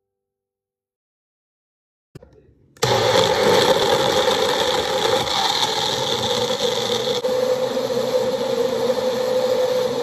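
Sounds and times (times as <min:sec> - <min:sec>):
blender motor whirring: 0:02.8 - 0:10.0.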